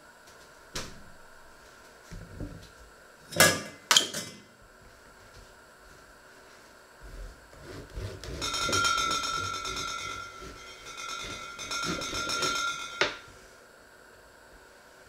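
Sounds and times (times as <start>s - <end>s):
knife sawing through bread: 7.5s - 12.5s.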